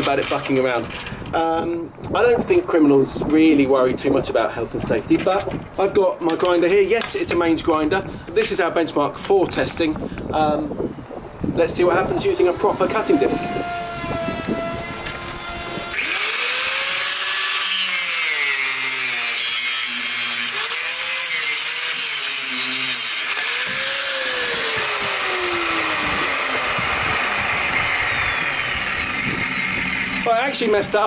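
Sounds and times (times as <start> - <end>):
angle grinder cutting steel chain: 12.0 - 31.0.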